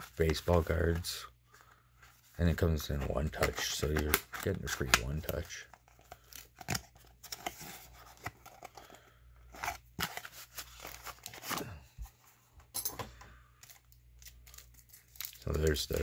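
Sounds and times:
plastic card holder handled: 0:03.2 - 0:05.8.

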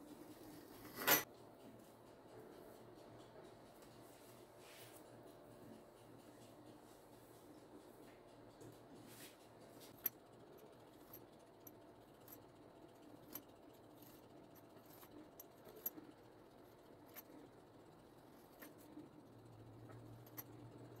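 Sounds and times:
pastry wheel clicking on dough: 0:09.9 - 0:21.0.

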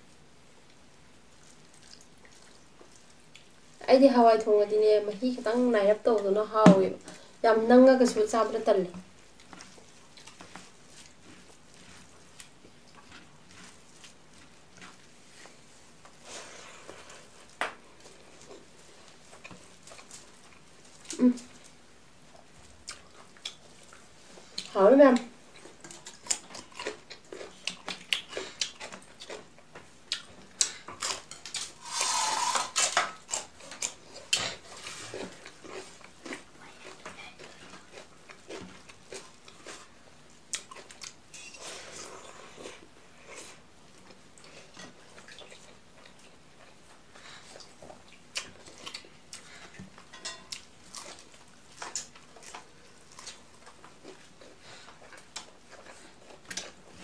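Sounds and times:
chewing and crisp bites: 0:25.5 - 0:39.9, 0:40.5 - 0:41.2, 0:47.4 - 0:57.0.

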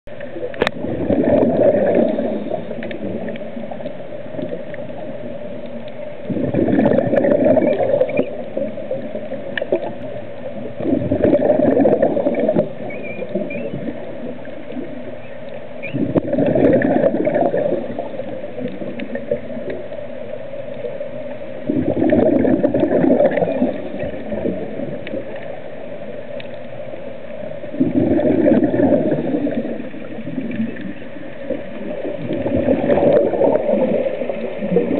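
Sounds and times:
underwater water noise: 0:00.0 - 0:34.9
exhaled breath bubbling underwater: 0:00.6 - 0:03.6, 0:06.2 - 0:19.6, 0:21.6 - 0:25.4, 0:27.7 - 0:34.9.

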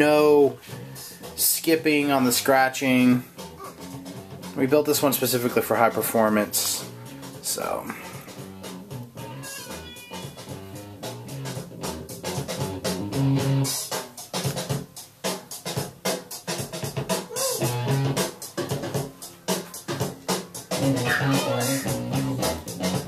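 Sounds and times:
rock band music: 0:08.1 - 0:14.0, 0:15.8 - 0:23.0.

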